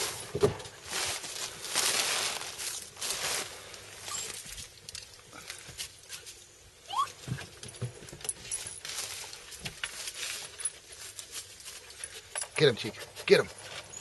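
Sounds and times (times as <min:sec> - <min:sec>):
faint rustles and ticks: 0:07.2 - 0:14.0
dog sniffing: 0:11.7 - 0:14.0.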